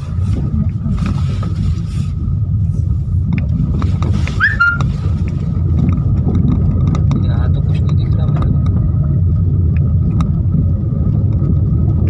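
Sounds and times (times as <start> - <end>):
car rumbling on dirt track: 0.0 - 12.0
brief rising chirp: 4.4 - 4.9.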